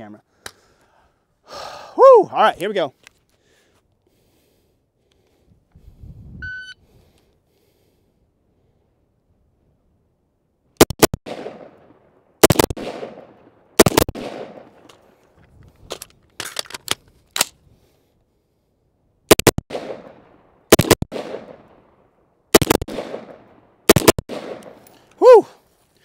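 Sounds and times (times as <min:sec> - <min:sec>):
rifle shots with echo: 0:10.8 - 0:15.1, 0:19.3 - 0:24.8.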